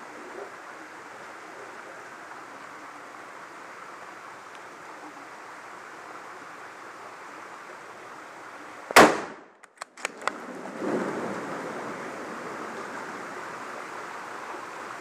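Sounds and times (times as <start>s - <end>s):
mountain stream rushing: 0.0s - 9.0s, 9.9s - 15.0s
rifle shot with echo: 9.0s - 9.5s.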